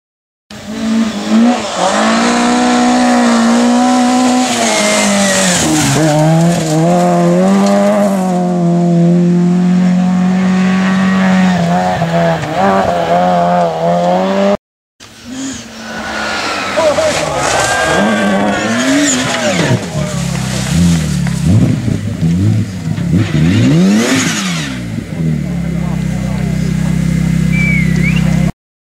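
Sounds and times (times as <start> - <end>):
rally car engine at high revs: 0.5 - 28.5
tyres hissing on gravel: 15.1 - 21.4.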